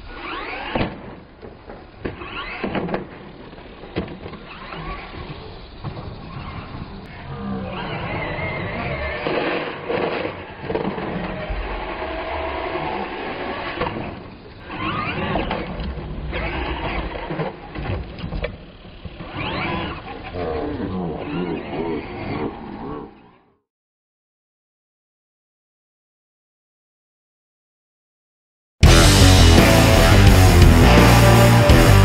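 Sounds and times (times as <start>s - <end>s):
toy truck motor whining: 0.0s - 1.0s, 1.9s - 23.1s.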